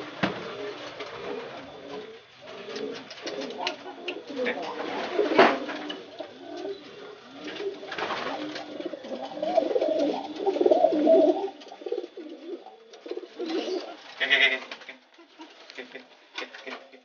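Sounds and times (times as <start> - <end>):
pigeon cooing: 0.0 - 17.0
wing flaps: 7.4 - 10.8.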